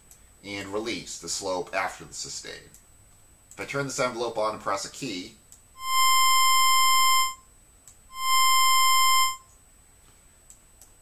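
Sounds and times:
buzzy synthesizer notes: 5.8 - 7.4, 8.1 - 9.4.

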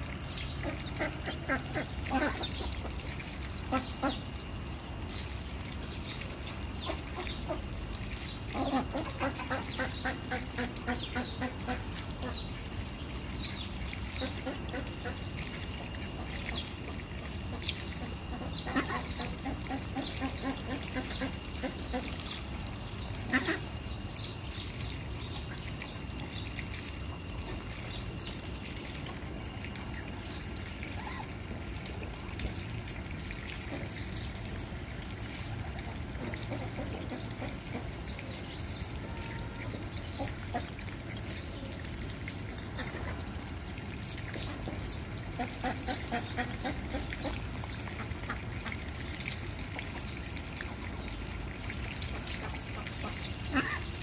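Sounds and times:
ducklings peeping: 0.3 - 3.0, 8.5 - 12.4, 17.5 - 26.4.

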